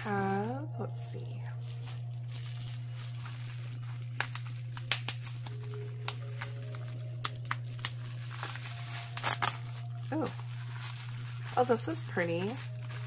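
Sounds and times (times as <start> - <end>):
bubble wrap crinkling: 0.0 - 13.0
steady low hum: 0.0 - 13.0.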